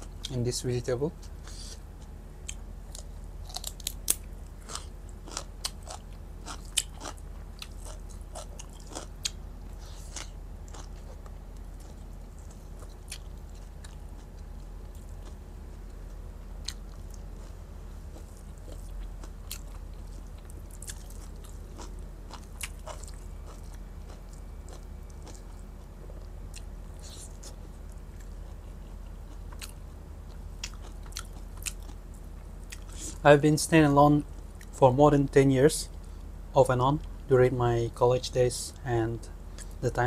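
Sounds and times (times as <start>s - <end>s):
low hum: 0.0s - 40.0s
chewing with wet crunches: 1.2s - 33.2s.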